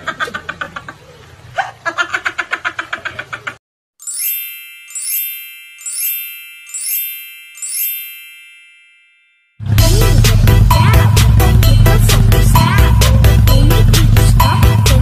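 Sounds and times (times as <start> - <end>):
fast pulsing music: 9.7 - 15.0.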